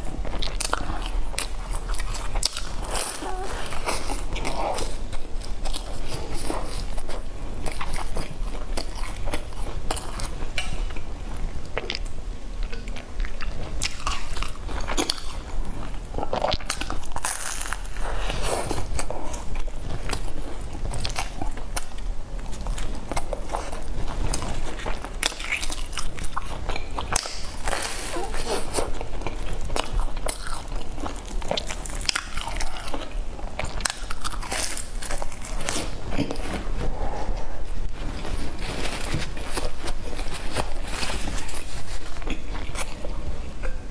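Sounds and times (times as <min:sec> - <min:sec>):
chewing crunchy pastry: 0:00.0 - 0:43.9.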